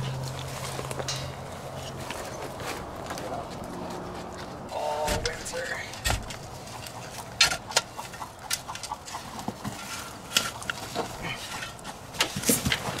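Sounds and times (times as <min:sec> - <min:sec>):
shovel scraping and knocking in dirt: 0:04.8 - 0:13.0.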